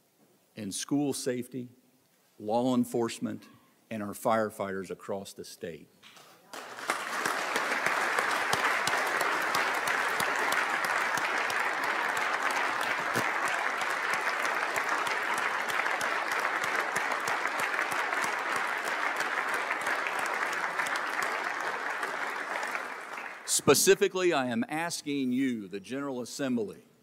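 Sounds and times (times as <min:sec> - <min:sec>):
audience applause: 0:06.5 - 0:24.2.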